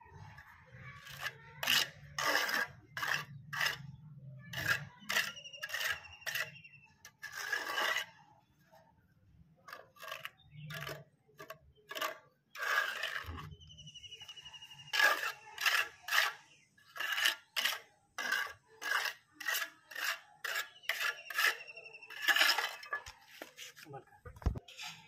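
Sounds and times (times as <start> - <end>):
steel trowel scraping wet cement: 0.1 - 8.3, 9.7 - 23.9.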